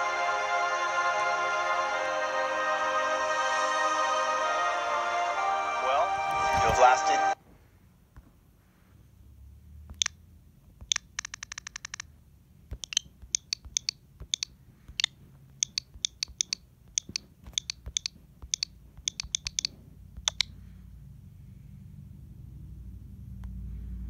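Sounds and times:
faint low hum: 0.0 - 24.0
sharp irregular clicks: 9.9 - 10.2, 10.8 - 12.1, 12.7 - 20.6
fast rattle of clicks: 10.9 - 12.1.

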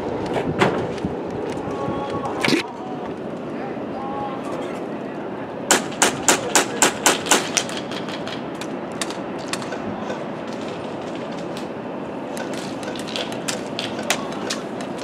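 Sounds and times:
steady background hiss: 0.0 - 15.0
airsoft guns firing: 5.7 - 8.4.

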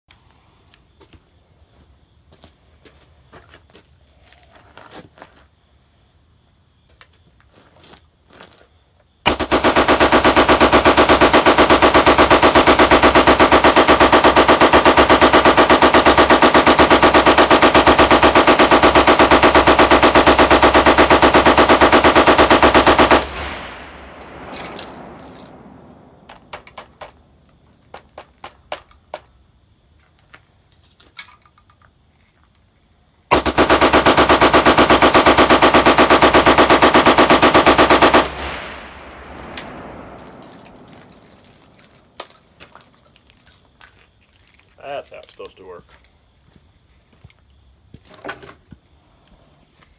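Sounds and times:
machine gun firing burst: 9.3 - 25.0, 33.3 - 41.5.

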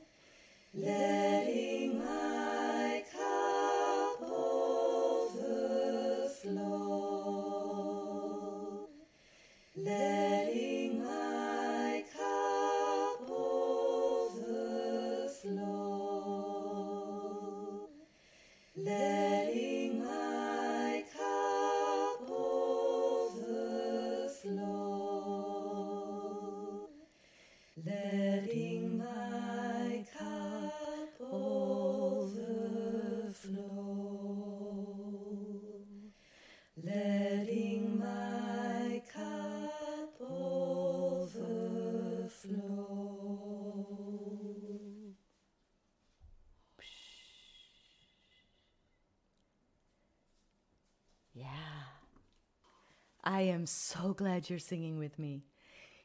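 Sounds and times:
breath between phrases: 0.0 - 0.8, 9.0 - 9.8, 18.0 - 18.8, 27.0 - 27.8, 36.1 - 36.8, 46.6 - 48.7, 51.4 - 53.3, 55.5 - 56.0.

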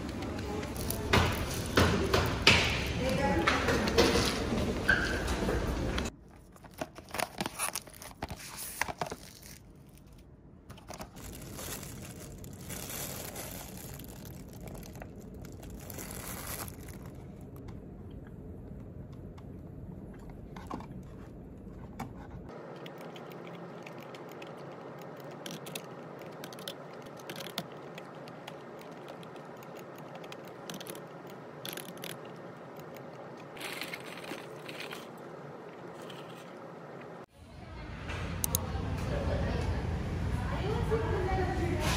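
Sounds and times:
plastic food bag crinkling: 6.4 - 17.6, 25.1 - 36.6
plastic wrap crinkling and tearing: 6.6 - 17.6, 33.6 - 35.2.

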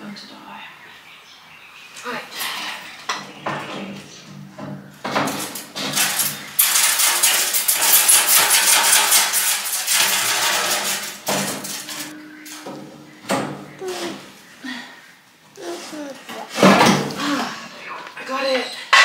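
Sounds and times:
rattling inside metal firebox: 3.2 - 14.6, 15.4 - 17.6.

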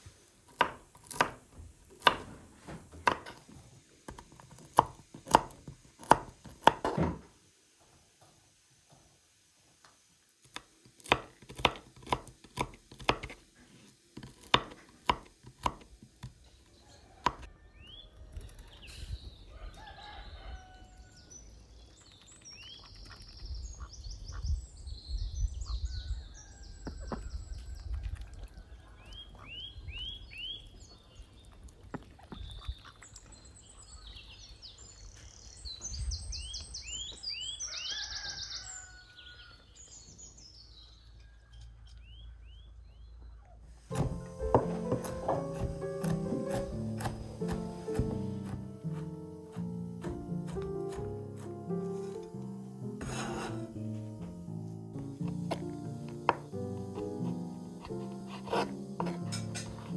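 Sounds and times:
knife chopping on wooden board: 0.5 - 1.4, 2.0 - 3.5, 4.1 - 7.2, 10.5 - 13.4, 14.2 - 16.4, 17.2 - 17.5, 43.9 - 52.3, 53.0 - 54.4, 55.0 - 59.9
birds chirping: 16.4 - 59.9.

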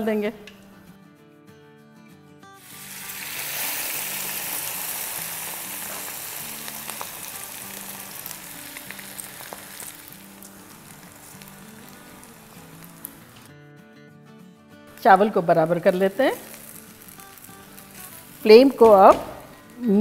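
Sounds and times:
rice sizzling in hot oil: 2.6 - 13.5, 15.0 - 19.3.

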